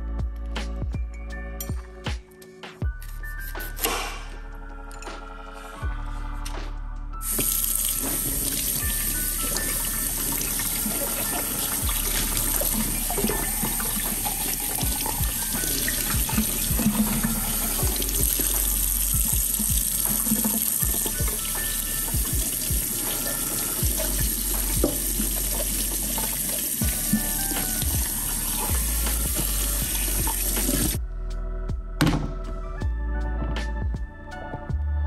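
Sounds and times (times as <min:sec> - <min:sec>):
tap water running into sink: 0:07.3 - 0:31.0.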